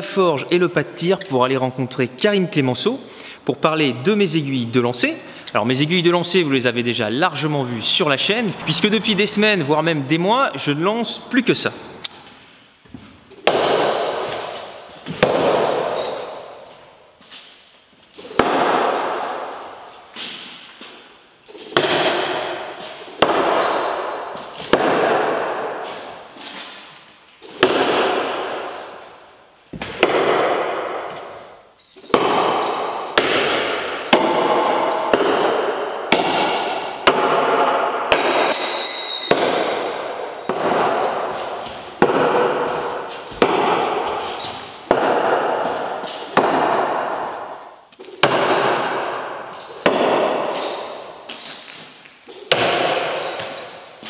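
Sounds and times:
needles hitting wooden boards: 32.1 - 38.6, 39.3 - 47.4.

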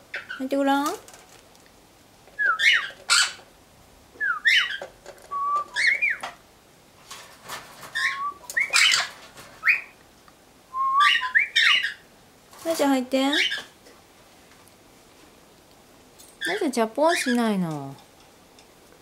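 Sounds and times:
cockatiel whistling: 2.4 - 3.3, 4.2 - 6.2, 8.0 - 9.9, 10.7 - 12.0.

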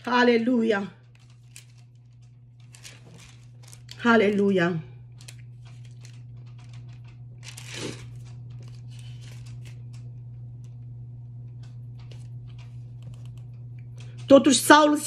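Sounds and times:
steady low hum: 0.0 - 15.0
thin pages rustling and crinkling: 1.0 - 10.2.

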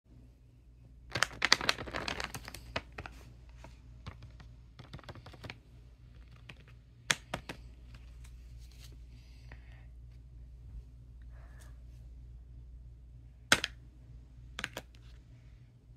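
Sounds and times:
paper bag crinkling: 1.1 - 6.6.

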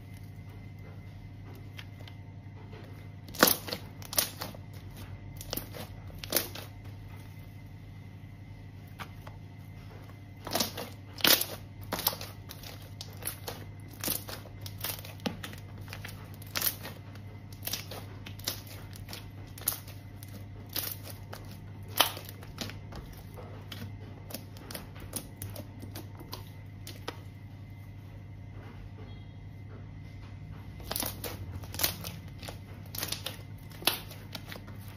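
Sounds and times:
low steady hum: 0.0 - 34.9
slime clicking and popping: 3.3 - 6.7, 10.4 - 27.2, 30.8 - 34.6.

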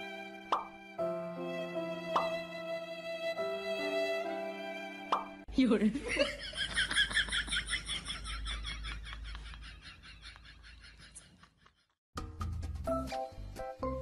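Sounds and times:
music: 0.0 - 5.5, 12.2 - 14.0.

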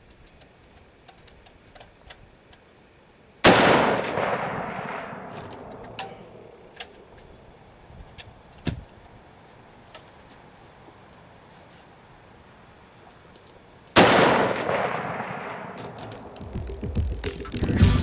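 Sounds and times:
rifle shot echoing: 3.4 - 7.2, 14.0 - 16.8.

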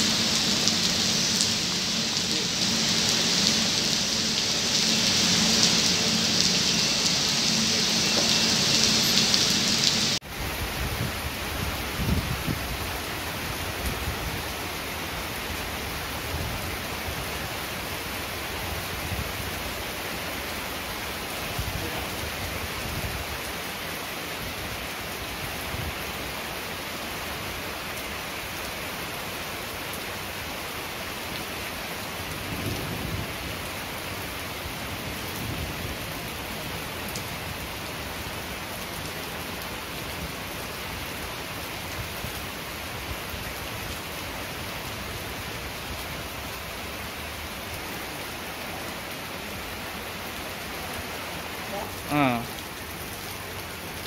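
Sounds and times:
low rumbles: 0.0 - 10.2
heavy rain on plants and steps: 0.0 - 54.0.

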